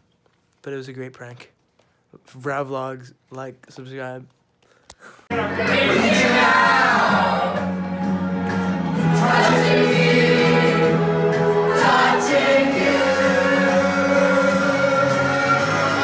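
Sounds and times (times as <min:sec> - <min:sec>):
choir singing long held notes: 0:05.3 - 0:07.9, 0:08.8 - 0:16.0.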